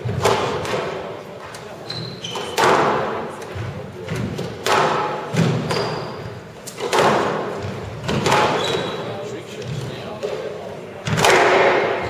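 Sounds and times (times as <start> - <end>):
squash ball hits echoing: 0.0 - 12.0
shoes squeaking on wooden floor: 1.5 - 2.8, 5.3 - 6.9, 7.5 - 10.0.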